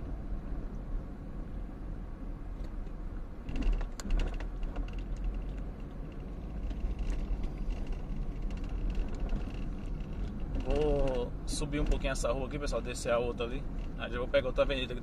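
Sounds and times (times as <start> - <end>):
car engine and road rumble: 0.0 - 15.0
clicking and rattling: 3.4 - 12.2.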